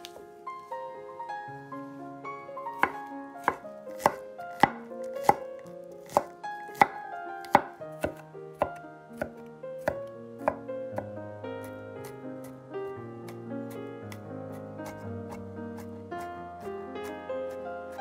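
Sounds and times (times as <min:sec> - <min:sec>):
background music: 0:00.0 - 0:18.0
knife chopping on wooden board: 0:02.8 - 0:11.1, 0:14.8 - 0:15.9.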